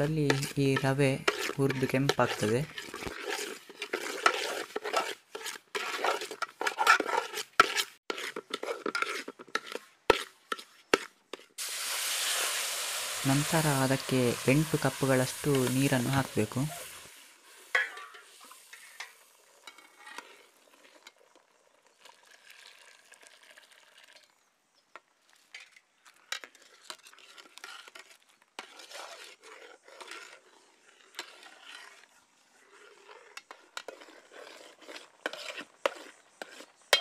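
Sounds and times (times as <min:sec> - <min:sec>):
ladle clicking and scraping pot: 0:00.0 - 0:11.5, 0:13.4 - 0:17.0, 0:17.7 - 0:24.2, 0:25.3 - 0:37.0
ladle stirring in metal pot: 0:00.0 - 0:24.4, 0:25.0 - 0:37.0
sizzling hiss: 0:11.6 - 0:20.6.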